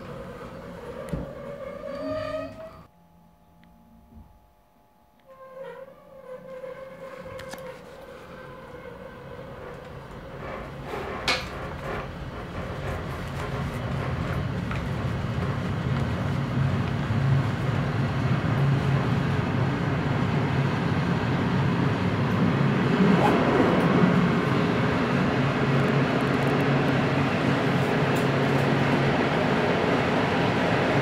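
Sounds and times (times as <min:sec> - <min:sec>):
train rolling on track: 0:08.1 - 0:31.0.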